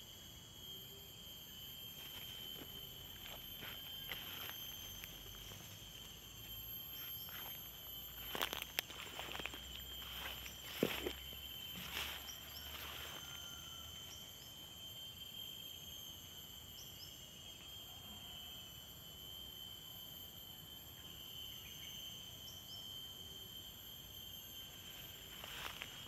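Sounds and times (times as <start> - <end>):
insects droning: 0.0 - 26.0
footsteps through grass: 7.0 - 13.2.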